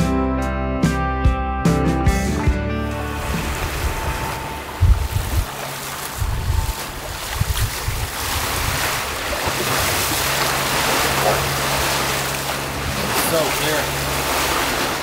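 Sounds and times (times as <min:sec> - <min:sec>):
water rushing along a hull: 0:02.4 - 0:15.0
low steady hum: 0:02.8 - 0:08.4
wind thumping on microphone: 0:03.2 - 0:10.2.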